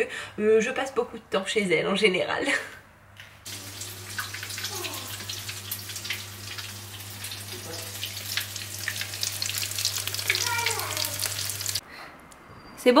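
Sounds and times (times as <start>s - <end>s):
pastries sizzling in oil: 3.5s - 11.8s.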